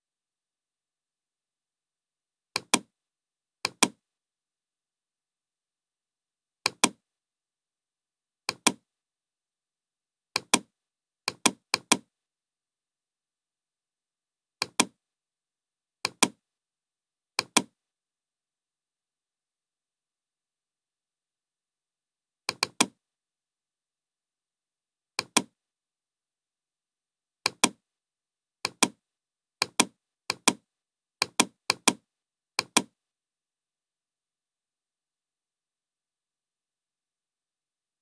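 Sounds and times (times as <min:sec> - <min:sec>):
computer mouse clicks: 0:02.6 - 0:02.9, 0:03.6 - 0:04.0, 0:06.7 - 0:07.0, 0:08.5 - 0:08.8, 0:10.4 - 0:10.7, 0:11.3 - 0:12.1, 0:14.6 - 0:15.0, 0:16.0 - 0:16.4, 0:17.4 - 0:17.7, 0:22.5 - 0:23.0, 0:25.2 - 0:25.5, 0:27.5 - 0:27.8, 0:28.6 - 0:29.0, 0:29.6 - 0:30.6, 0:31.2 - 0:32.0, 0:32.6 - 0:33.0.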